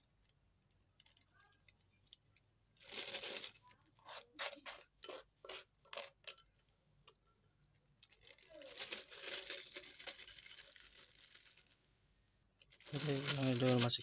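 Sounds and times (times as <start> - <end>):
crinkling plastic bag: 0.0 - 4.2, 8.0 - 11.9, 12.6 - 14.0.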